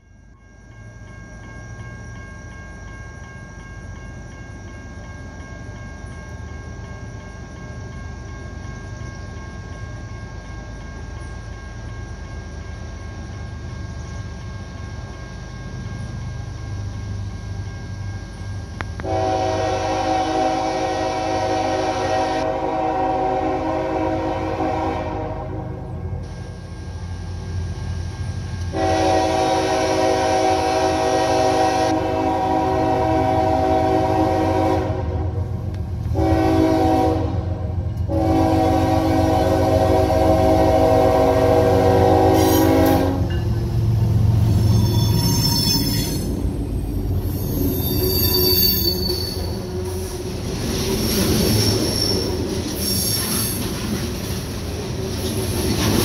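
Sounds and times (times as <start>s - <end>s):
locomotive engine rumble: 0.0s - 56.0s
locomotive air horn blast: 19.0s - 25.9s, 28.7s - 43.3s.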